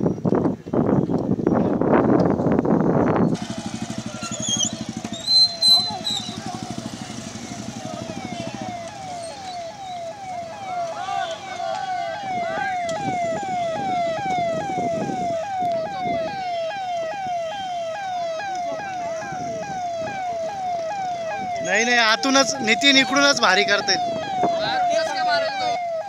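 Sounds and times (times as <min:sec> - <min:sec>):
crowd murmuring: 0:03.4 - 0:14.4
fire engine siren wailing: 0:03.4 - 0:26.0.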